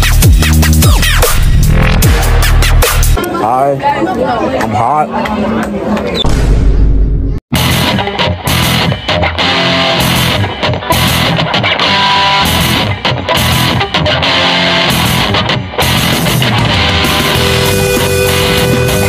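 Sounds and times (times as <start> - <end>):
electric guitar rock music: 7.5 - 19.0.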